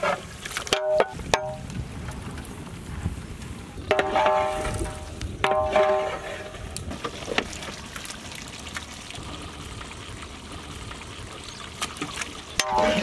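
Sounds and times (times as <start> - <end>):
liquid bubbling in a pot: 3.9 - 13.0.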